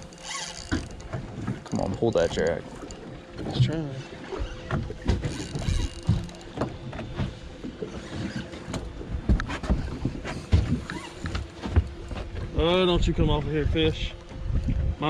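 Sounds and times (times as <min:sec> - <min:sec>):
water noise: 0:00.0 - 0:15.0
wind: 0:00.0 - 0:15.0
sharp knocks and clicks: 0:04.7 - 0:07.4.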